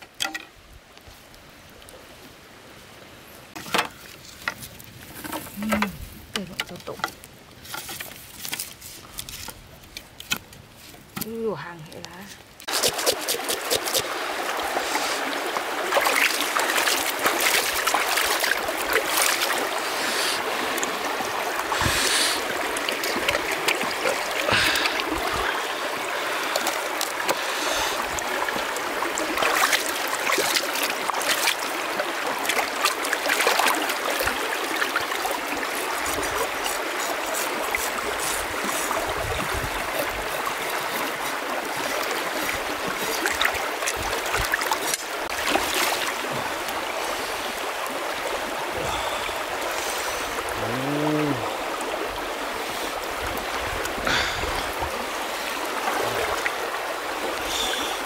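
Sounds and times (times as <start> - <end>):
stream running over rocks: 0.0 - 58.0
knife scraping fish scales: 12.6 - 14.1, 36.0 - 39.0.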